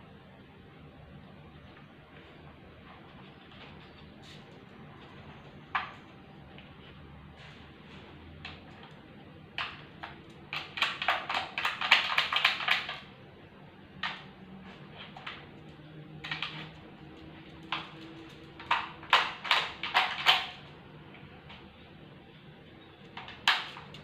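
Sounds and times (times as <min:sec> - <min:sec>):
plastic feeder clicking and clattering: 0:09.6 - 0:13.1, 0:17.6 - 0:20.7, 0:23.2 - 0:24.0.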